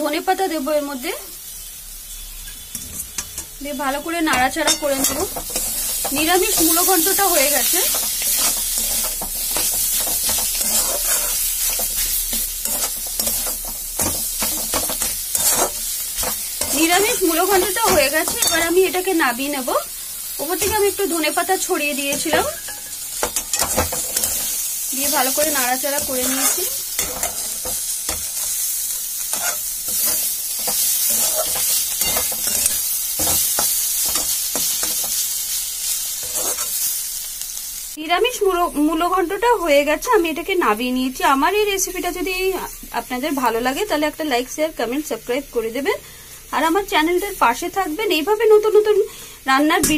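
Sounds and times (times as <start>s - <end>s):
food sizzling in oil: 0.0s - 49.9s
metal spatula scraping pan: 2.4s - 3.6s, 4.3s - 18.8s, 22.1s - 28.6s, 29.3s - 35.2s, 36.2s - 36.8s.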